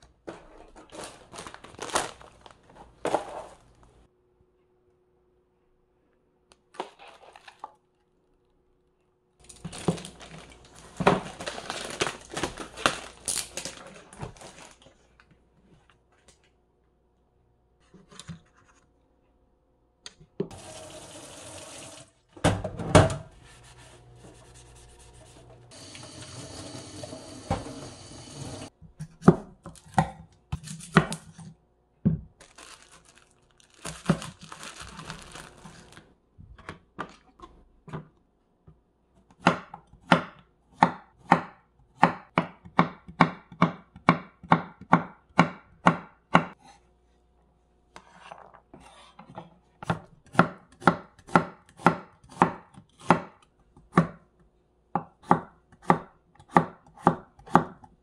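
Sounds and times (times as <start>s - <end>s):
dish-washing: 20.4s - 28.7s
knife chopping on wooden board: 39.4s - 46.6s, 49.8s - 54.2s, 55.0s - 57.8s.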